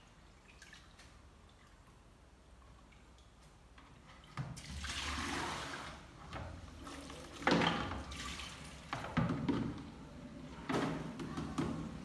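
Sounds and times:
water splashing in a basin: 0:00.2 - 0:02.1, 0:04.2 - 0:06.1, 0:06.8 - 0:09.3.

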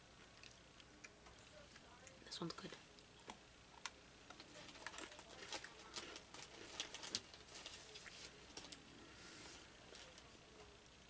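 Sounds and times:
plastic wrapper crinkling: 0:03.2 - 0:08.9.

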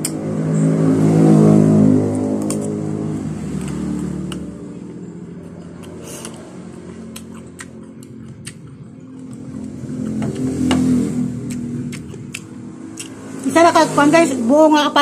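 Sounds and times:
engine humming: 0:00.0 - 0:15.0
chewing soft fruit: 0:02.0 - 0:13.6
wet mouth clicks: 0:05.5 - 0:10.5, 0:11.4 - 0:13.2.

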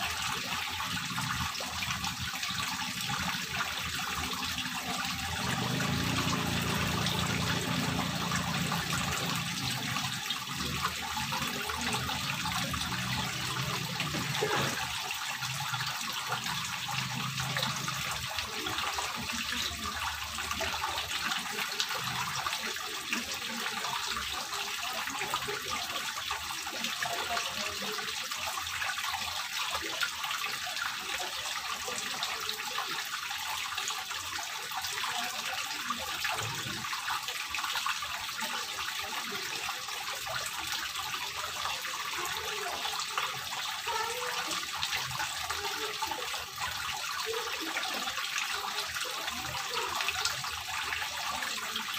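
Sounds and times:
water trickling and splashing: 0:00.0 - 0:51.9.

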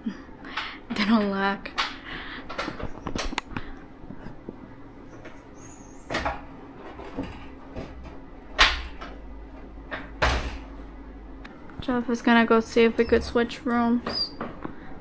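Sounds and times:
windows opening and shutting: 0:05.2 - 0:09.2.

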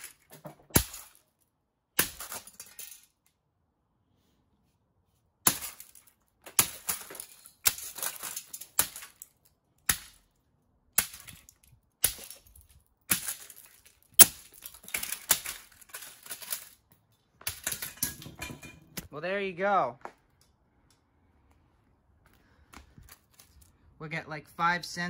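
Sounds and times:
video recorder being smashed: 0:00.0 - 0:01.2, 0:14.2 - 0:16.6
broken pieces clattering: 0:00.0 - 0:01.3, 0:02.0 - 0:03.2, 0:05.5 - 0:09.5, 0:11.0 - 0:19.0.

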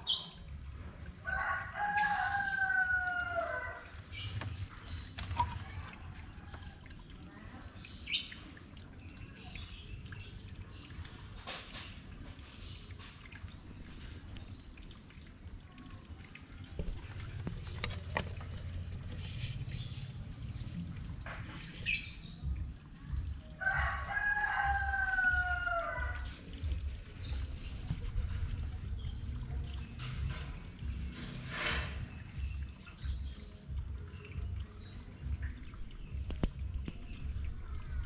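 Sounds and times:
rooster crowing: 0:01.3 - 0:03.8, 0:23.6 - 0:26.2.

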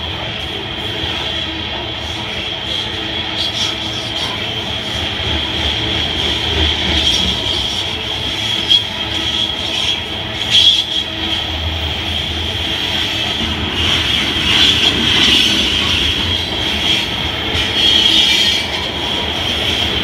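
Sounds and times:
train wheels rumbling on rail: 0:00.0 - 0:20.0
high wheel squeal: 0:02.0 - 0:04.7, 0:06.4 - 0:11.6, 0:13.7 - 0:19.7.

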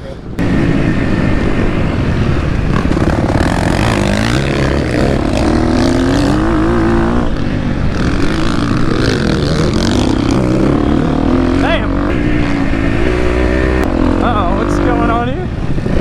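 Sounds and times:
dirt bike engine revving: 0:00.4 - 0:16.0.

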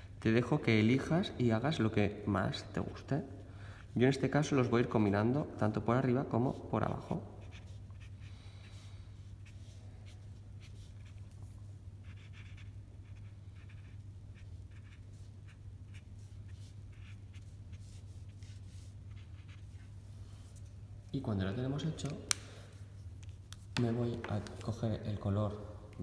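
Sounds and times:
marker scratching on paper: 0:06.5 - 0:20.7.

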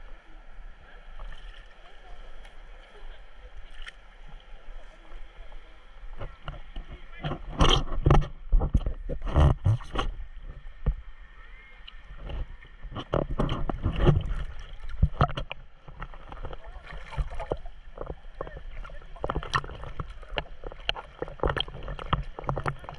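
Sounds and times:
seawater sloshing and splashing: 0:11.6 - 0:22.9.

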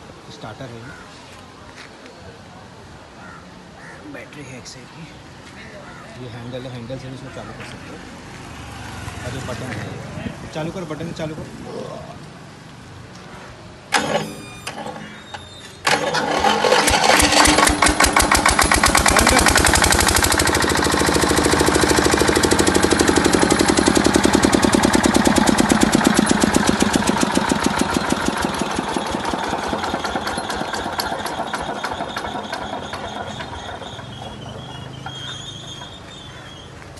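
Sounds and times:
electric starter cranking: 0:13.9 - 0:36.0
diesel generator engine running: 0:13.9 - 0:36.6.

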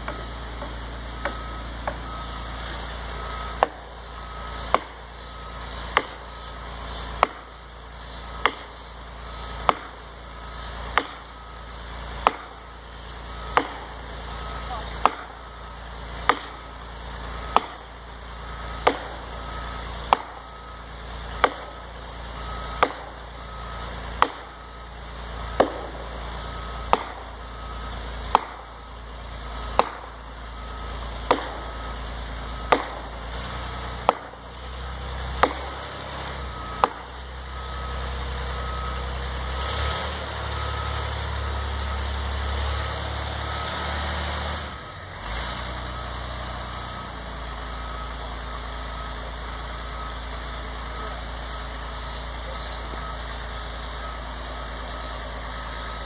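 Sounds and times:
wedge being pounded: 0:31.2 - 0:31.6.

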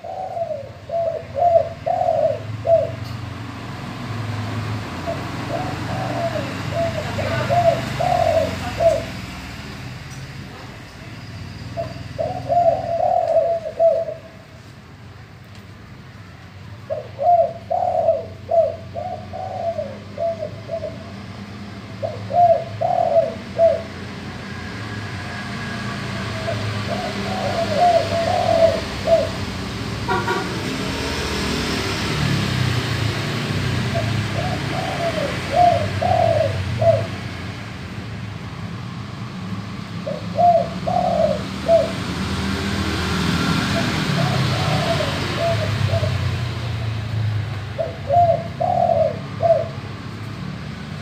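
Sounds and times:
dove cooing: 0:00.0 - 0:03.2, 0:04.9 - 0:09.2, 0:11.8 - 0:14.4, 0:16.8 - 0:21.2, 0:21.9 - 0:24.1, 0:26.2 - 0:30.4, 0:33.8 - 0:37.4, 0:40.0 - 0:42.1, 0:43.5 - 0:46.6, 0:47.7 - 0:49.9.

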